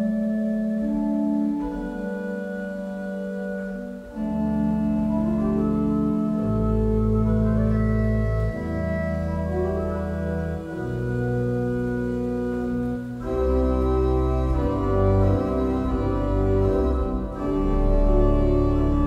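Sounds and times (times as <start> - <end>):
deep organ bass notes: 0.0 - 19.0
pipe organ chords: 0.0 - 19.0.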